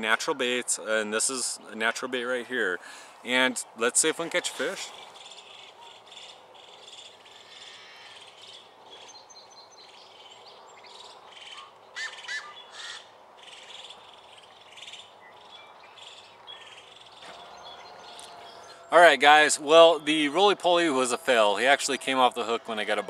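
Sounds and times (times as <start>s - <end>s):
birds chirping: 0.0s - 23.0s
faint outdoor hiss: 0.0s - 23.0s.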